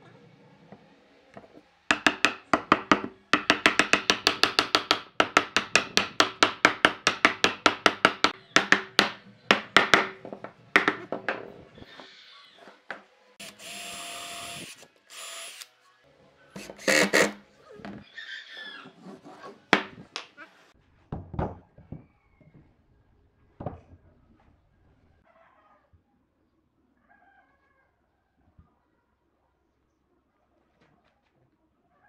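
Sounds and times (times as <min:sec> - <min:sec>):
hammer knocking wood: 0:01.9 - 0:11.4
cordless drill driving screw: 0:13.4 - 0:15.7.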